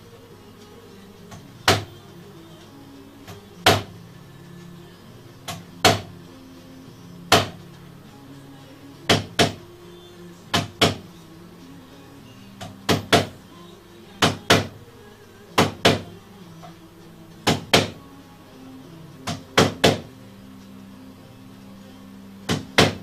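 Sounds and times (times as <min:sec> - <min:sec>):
quiet background music: 0:00.0 - 0:23.0
mallet striking chisel into wood: 0:05.5 - 0:06.1, 0:07.3 - 0:07.6, 0:09.1 - 0:09.6, 0:10.5 - 0:11.0, 0:12.9 - 0:13.4.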